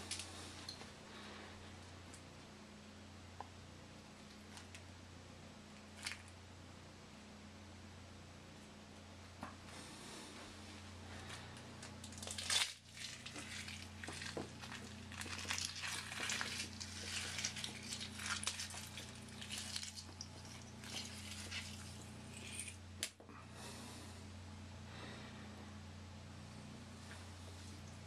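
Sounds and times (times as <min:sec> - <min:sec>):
egg crackling and squishing: 0:11.3 - 0:23.2
beard hair rustling: 0:12.0 - 0:22.8.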